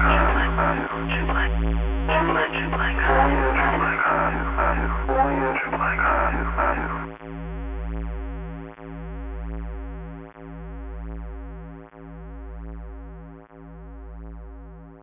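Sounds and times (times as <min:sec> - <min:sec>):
deep synth bass note: 0:00.0 - 0:02.2.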